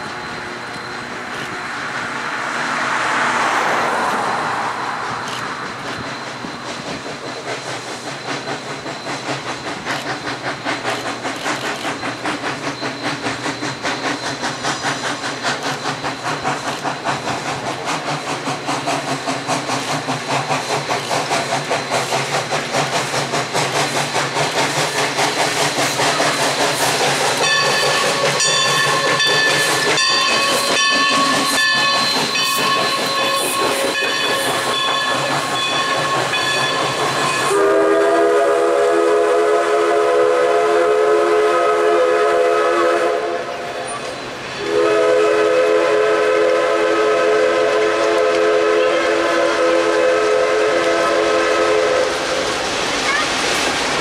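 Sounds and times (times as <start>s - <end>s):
steam locomotive chuffing: 0.0s - 54.0s
steam whistle: 26.0s - 44.0s, 44.6s - 52.5s.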